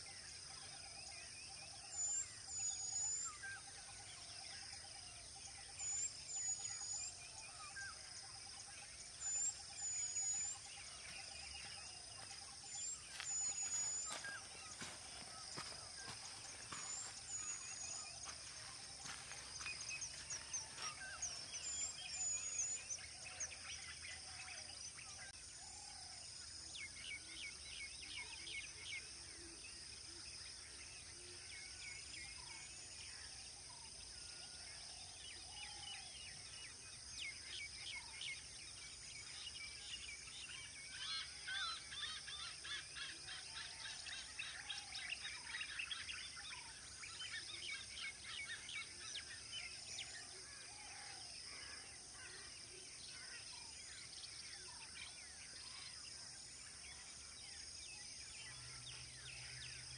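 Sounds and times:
birds chirping: 1.8 - 25.3.

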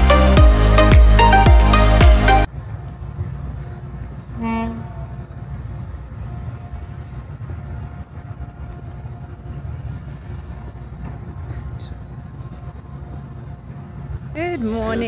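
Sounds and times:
steady low rumble: 4.7 - 15.0.

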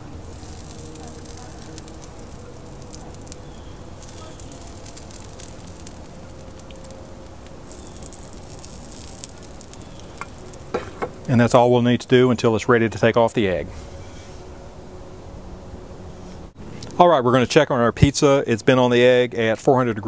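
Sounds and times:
charcoal grill crackling and sizzling: 0.0 - 14.6
small sharp ticks: 0.4 - 11.2.

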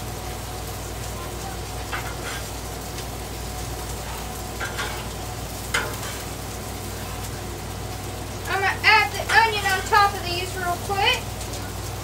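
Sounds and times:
burgers sizzling on griddle: 0.0 - 12.0
metal spatula scraping griddle: 1.9 - 2.5, 4.6 - 6.4, 9.2 - 10.2.

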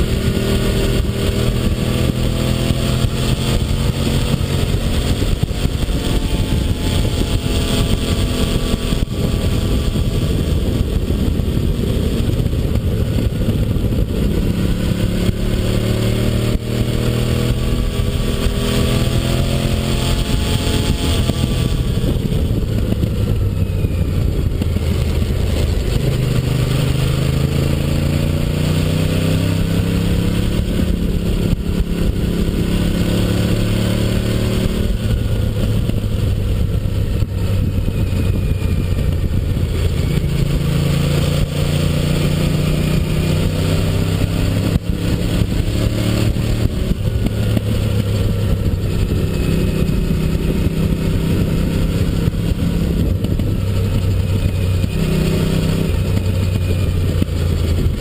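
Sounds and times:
motorcycle engine accelerating: 0.0 - 58.0
wind and road noise: 0.0 - 58.0.

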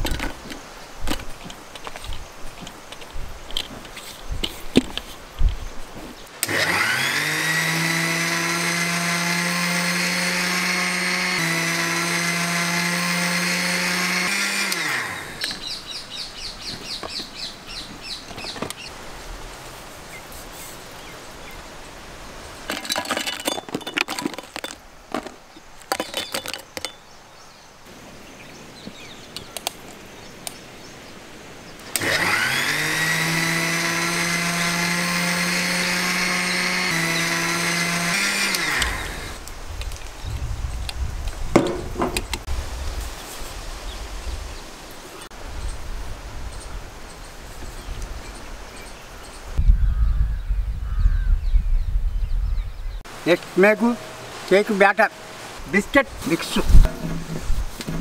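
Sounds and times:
mixer grinder whining: 6.4 - 15.8, 31.9 - 39.4
knocks and clatter: 41.5 - 42.5, 56.8 - 58.0.

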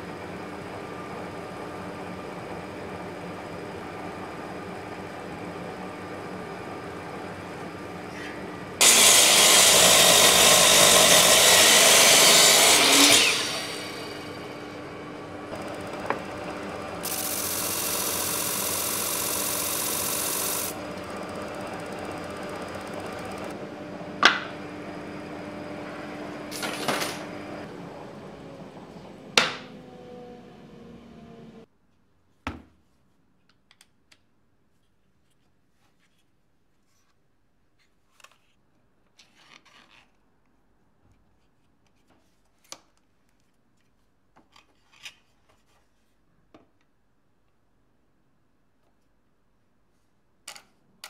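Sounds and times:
disc sander spinning down: 8.8 - 31.7.

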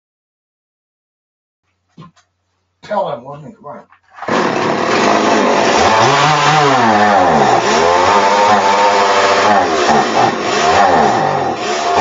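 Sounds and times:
engine revving: 4.2 - 12.0.

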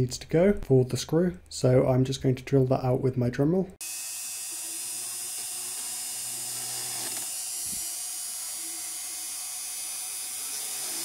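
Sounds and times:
rotary tool high-pitched whine: 3.8 - 11.0.

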